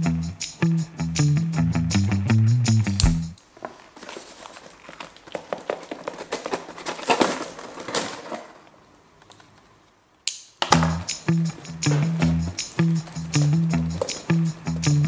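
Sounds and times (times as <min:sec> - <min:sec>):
knife cutting tape and cardboard: 0:02.9 - 0:03.4.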